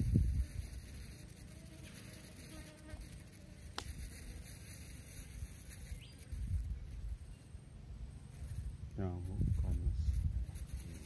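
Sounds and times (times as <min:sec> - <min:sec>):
wind buffeting microphone: 0:00.0 - 0:01.1, 0:08.5 - 0:11.0.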